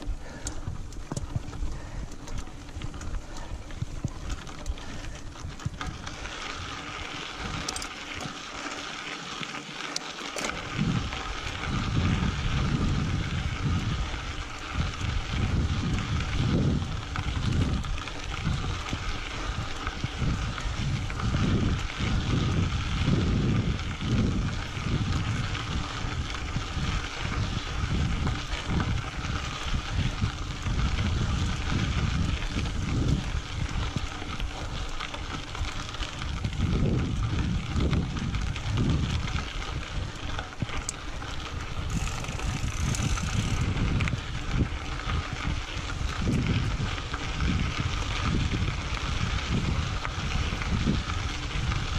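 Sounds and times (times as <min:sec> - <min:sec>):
wind rumble on microphone: 0:00.0 - 0:08.6, 0:10.4 - 0:51.9
bike tyres hissing on gravel: 0:00.0 - 0:51.9.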